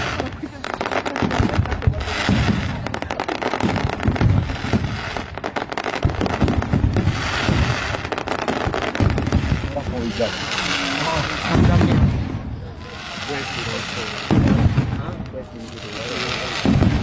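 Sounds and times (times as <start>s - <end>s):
low firework booms: 0.0s - 17.0s
rapid firework crackling: 0.0s - 17.0s
aerial firework shells bursting: 16.4s - 17.0s.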